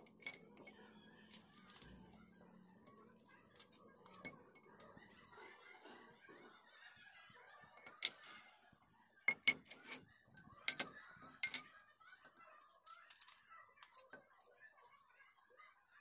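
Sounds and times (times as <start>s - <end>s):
iron pipes clinking on concrete: 0.0s - 2.1s, 2.8s - 5.2s, 7.8s - 8.5s, 9.3s - 11.7s.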